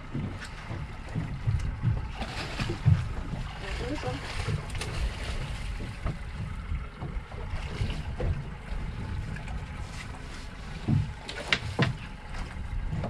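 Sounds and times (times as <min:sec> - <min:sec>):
wind buffeting microphone: 0:00.0 - 0:10.2
water splashing against boat: 0:00.0 - 0:13.0.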